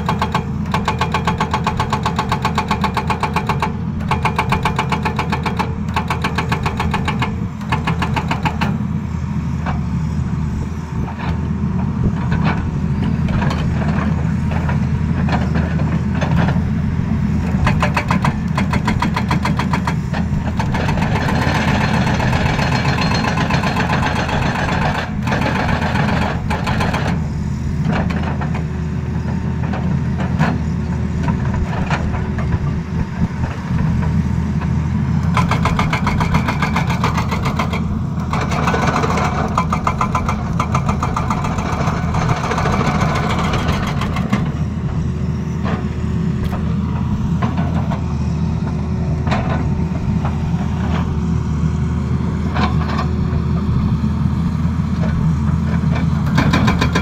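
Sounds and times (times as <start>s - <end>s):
hydraulic breaker hammering rock: 0.0s - 8.8s, 17.5s - 27.2s, 35.2s - 44.6s, 56.2s - 57.0s
excavator diesel engine running: 0.0s - 57.0s.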